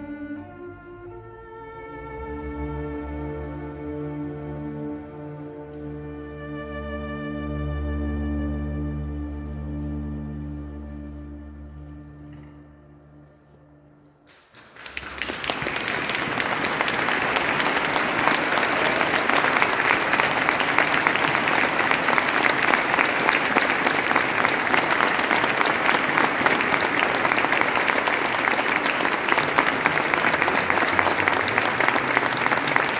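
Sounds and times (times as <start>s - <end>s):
audience applauding: 14.3s - 32.9s.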